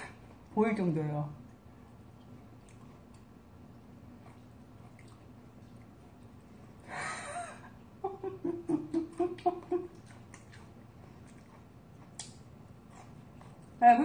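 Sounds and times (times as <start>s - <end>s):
woman laughing: 6.9s - 10.0s.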